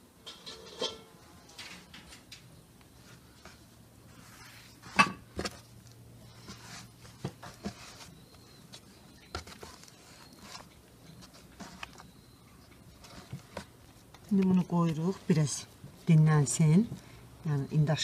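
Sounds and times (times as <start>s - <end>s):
hands rubbing dough: 3.0s - 5.0s, 5.7s - 16.8s.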